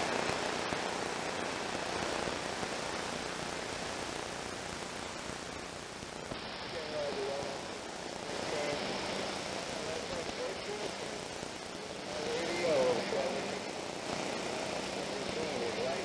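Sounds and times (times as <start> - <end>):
faint wavering signal: 0.0 - 16.0
radio static hiss: 0.0 - 16.0.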